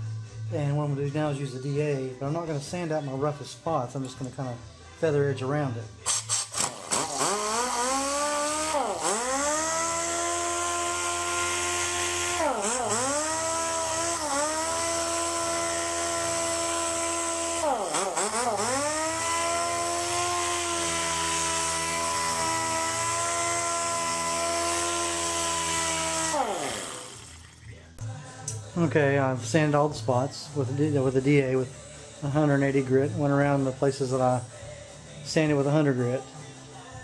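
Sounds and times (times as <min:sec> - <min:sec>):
sander whine: 0:06.9 - 0:27.4.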